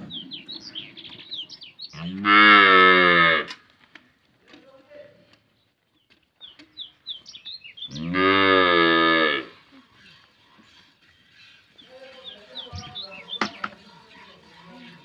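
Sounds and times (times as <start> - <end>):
cow mooing: 1.9 - 3.6, 7.9 - 9.6.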